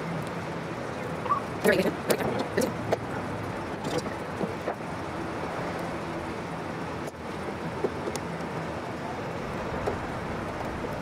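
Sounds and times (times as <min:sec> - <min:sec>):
steady background noise: 0:00.0 - 0:11.0.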